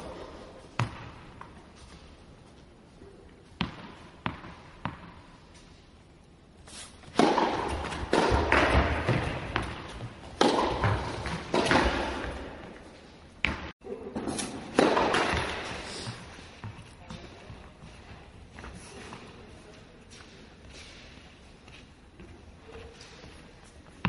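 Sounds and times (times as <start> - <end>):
tennis ball hit with racket: 7.0 - 12.8, 14.3 - 15.8.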